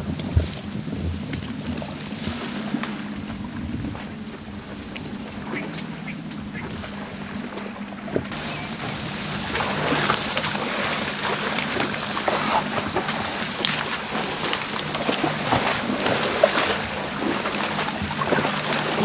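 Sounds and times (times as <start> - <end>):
faint low hum: 0.0 - 19.0
tall grass rustling and crackling: 0.0 - 19.0.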